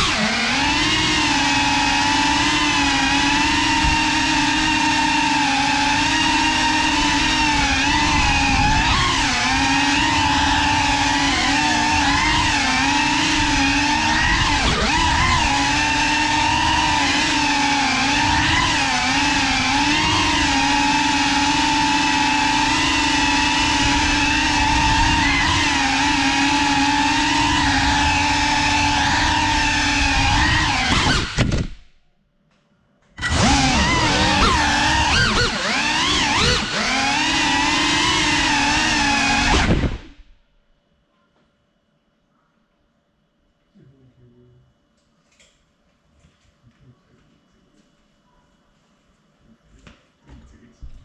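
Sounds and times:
drone motors whining: 0:00.0 - 0:32.0, 0:33.2 - 0:40.4.

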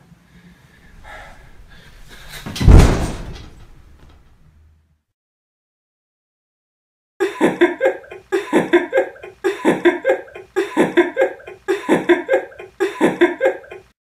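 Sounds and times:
young man laughing: 0:07.2 - 0:14.0.

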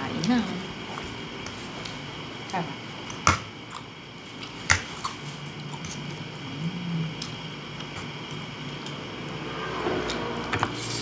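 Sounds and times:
low hum: 0:05.0 - 0:10.8.

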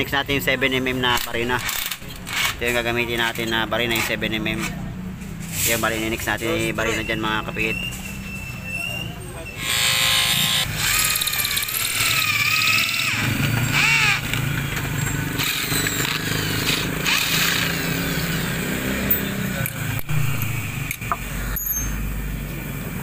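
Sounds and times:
drill bit squealing on metal: 0:06.4 - 0:14.4, 0:21.5 - 0:22.1
electric drill humming: 0:09.6 - 0:14.4, 0:15.4 - 0:18.6.

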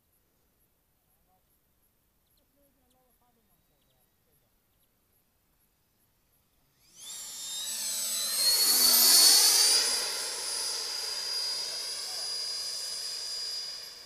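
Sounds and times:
model jet whine: 0:06.6 - 0:14.0.

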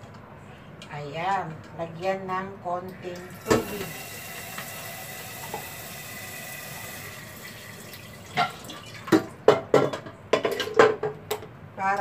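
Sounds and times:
water pouring into pot: 0:03.3 - 0:09.1.

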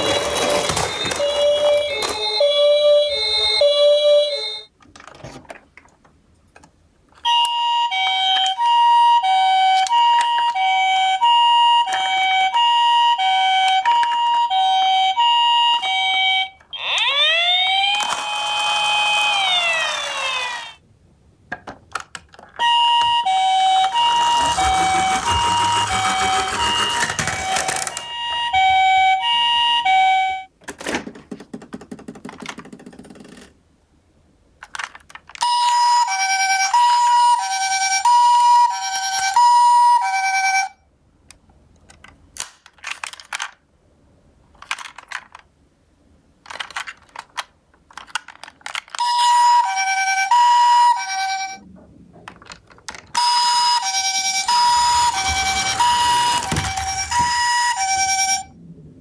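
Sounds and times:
toy two-tone siren: 0:00.0 - 0:04.7, 0:07.2 - 0:20.8, 0:22.6 - 0:30.5, 0:35.4 - 0:40.8, 0:48.9 - 0:51.6, 0:53.1 - 0:58.6
toy siren wail: 0:07.2 - 0:20.8, 0:22.6 - 0:30.5, 0:35.4 - 0:40.8, 0:48.9 - 0:51.6, 0:53.1 - 0:58.6.

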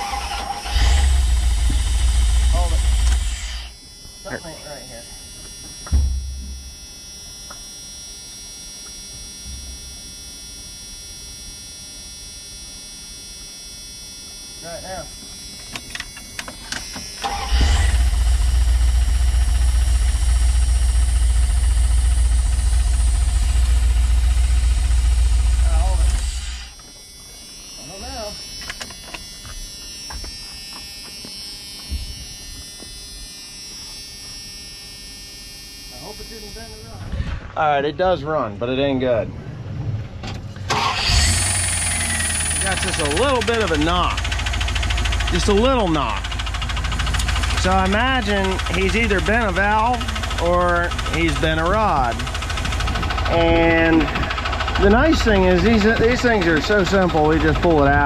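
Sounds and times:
truck engine idling: 0:00.0 - 0:03.7, 0:17.3 - 0:26.7, 0:40.6 - 0:58.0
loud thump: 0:05.9 - 0:06.7.

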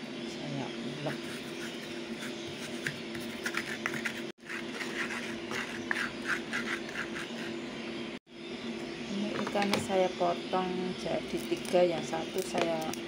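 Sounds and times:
pestle scraping in mortar: 0:01.0 - 0:07.6.

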